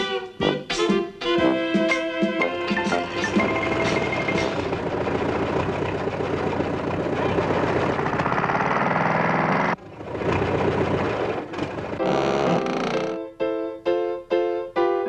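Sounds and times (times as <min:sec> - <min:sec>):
cartoon truck engine chugging: 0:02.5 - 0:12.7.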